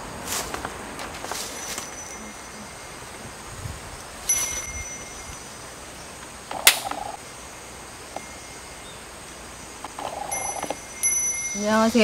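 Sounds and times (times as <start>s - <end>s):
small metal bell ringing: 1.3s - 5.8s, 8.1s - 9.1s, 10.0s - 12.0s.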